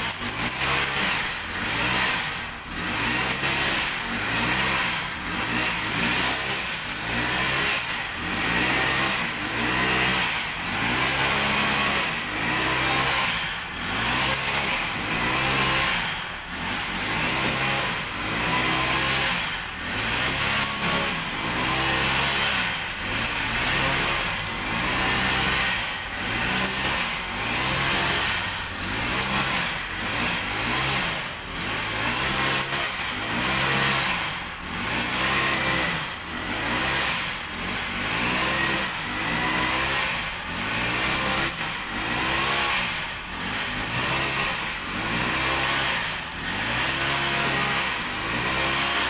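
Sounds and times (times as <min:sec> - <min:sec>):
brush cutter engine running: 0:00.0 - 0:49.0.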